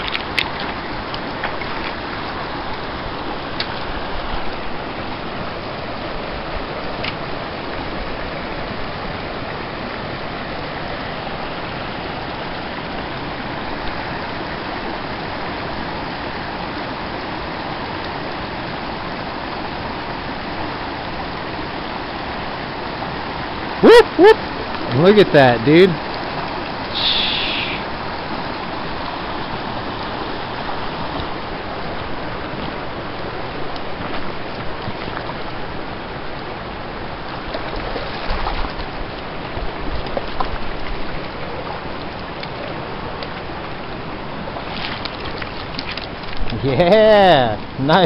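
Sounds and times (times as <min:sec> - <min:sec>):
stream rushing over rapids: 0:00.0 - 0:48.0.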